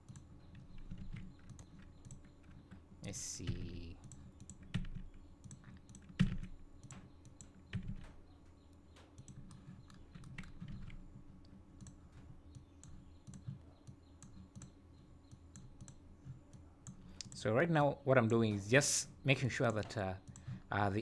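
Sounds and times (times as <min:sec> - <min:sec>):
computer mouse clicks: 0:00.0 - 0:02.8, 0:03.6 - 0:17.4.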